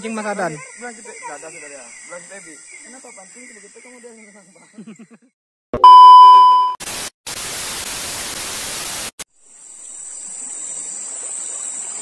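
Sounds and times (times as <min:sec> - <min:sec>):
white noise static burst: 0:06.8 - 0:09.2.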